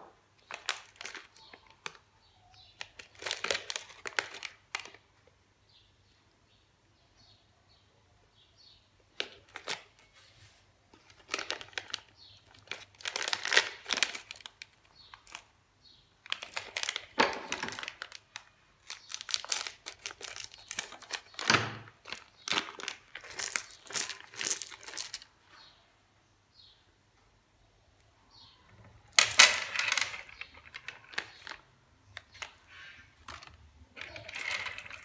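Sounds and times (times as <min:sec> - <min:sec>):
plastic wrappers crinkling: 0:00.4 - 0:05.1, 0:09.2 - 0:10.1, 0:11.0 - 0:15.5, 0:16.2 - 0:25.3, 0:29.1 - 0:35.0
wrapper tearing: 0:00.5 - 0:02.0, 0:02.8 - 0:05.0, 0:09.2 - 0:09.9, 0:11.0 - 0:15.5, 0:16.3 - 0:25.3, 0:32.2 - 0:35.0.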